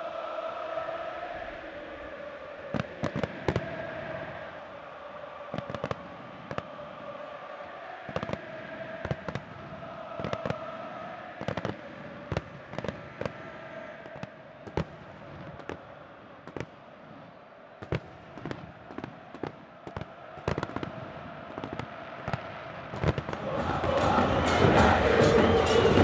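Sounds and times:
fireworks bangs and cracks: 0:02.7 - 0:03.9, 0:05.5 - 0:06.8, 0:08.1 - 0:16.8, 0:17.8 - 0:26.0.

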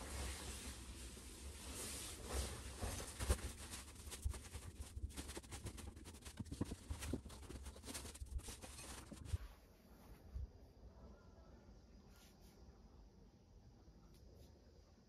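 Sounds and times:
bed sheet rustling and crinkling: 0:00.0 - 0:10.3.

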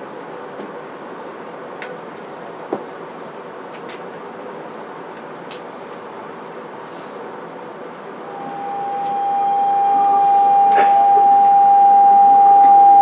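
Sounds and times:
train inverter whine: 0:06.2 - 0:13.0
train car rumble: 0:06.8 - 0:12.1.

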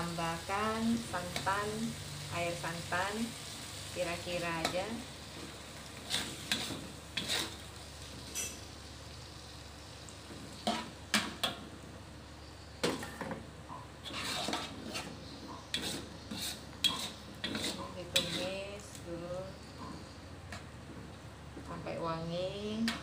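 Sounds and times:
low sizzle: 0:00.0 - 0:23.0
metal spatula scraping wok: 0:06.0 - 0:08.7, 0:10.6 - 0:11.3, 0:14.0 - 0:18.9.

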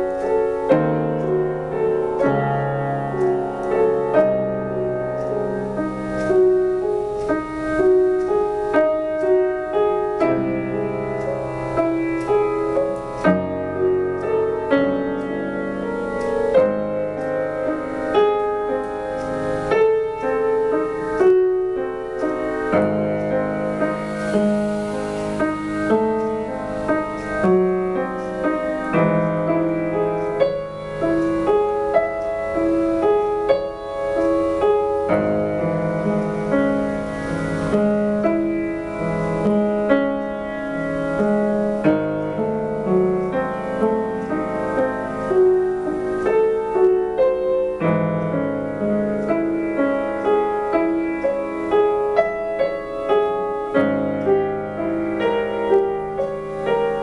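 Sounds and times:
upright piano playing: 0:00.0 - 0:57.0.

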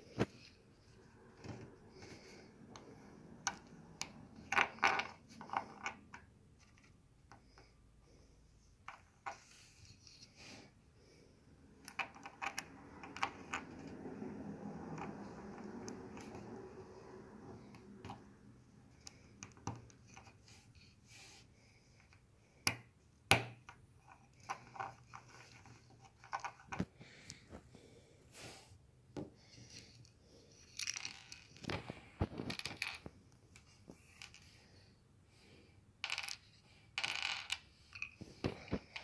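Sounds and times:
plastic bricks clicking together: 0:36.0 - 0:38.2.

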